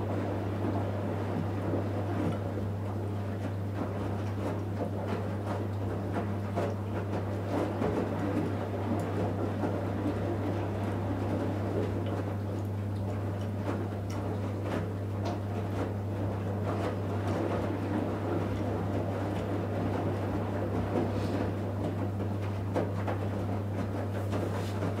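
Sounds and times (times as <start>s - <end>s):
washing machine motor hum: 0.0s - 25.0s
laundry swishing in drum: 13.1s - 25.0s.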